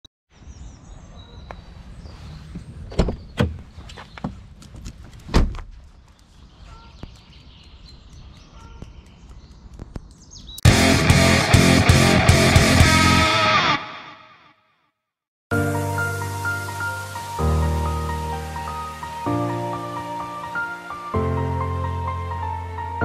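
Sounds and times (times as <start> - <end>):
car door knocks and thunks: 2.9 - 3.6
car door shutting: 2.9 - 4.0.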